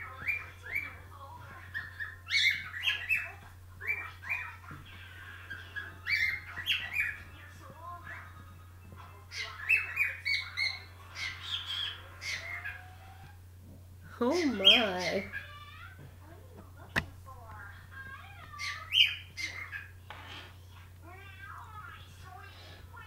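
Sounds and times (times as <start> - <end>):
cockatiel chirping and whistling: 1.7 - 4.5, 5.5 - 7.3.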